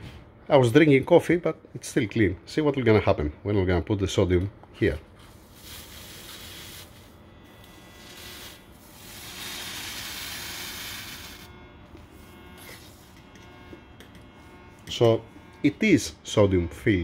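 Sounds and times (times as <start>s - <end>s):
sodium hissing in liquid: 5.3s - 7.2s, 8.0s - 11.5s.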